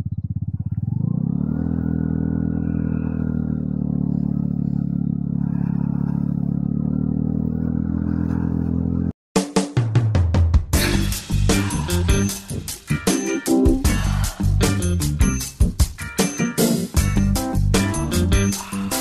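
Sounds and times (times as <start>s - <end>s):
scooter engine running: 0.0s - 9.1s.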